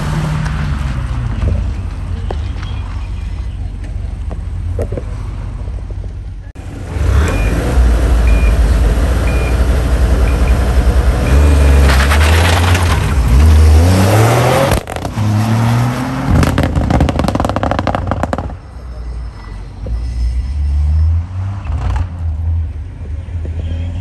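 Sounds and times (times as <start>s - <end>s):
car engine revving: 6.6s - 18.5s
car pulling away: 6.6s - 18.5s
car accelerating hard: 6.8s - 18.4s
start clock beeps: 8.2s - 8.6s, 9.2s - 9.6s.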